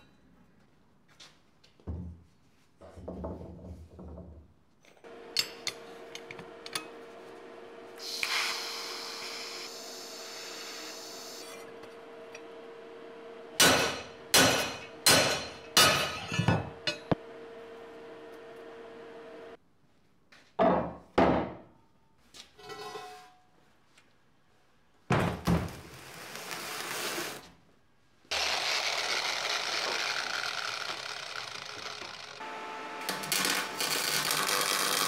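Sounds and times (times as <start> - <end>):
welding arc hissing: 8.0 - 11.6, 25.7 - 27.4, 33.0 - 35.0.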